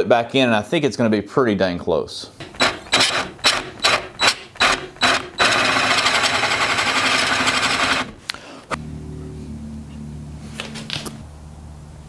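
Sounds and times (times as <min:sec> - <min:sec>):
drill cutting into wood: 0:02.6 - 0:08.2
steady low hum: 0:08.3 - 0:12.0.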